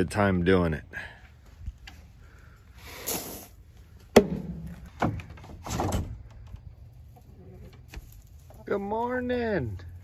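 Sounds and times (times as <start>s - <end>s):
sharp wooden knocks: 4.1s - 6.0s.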